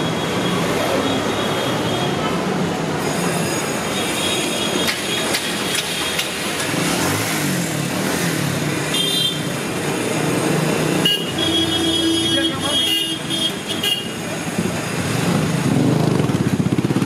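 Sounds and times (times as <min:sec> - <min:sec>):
vehicles passing: 0:00.0 - 0:17.0
vehicle horn: 0:08.9 - 0:09.5, 0:10.9 - 0:14.2.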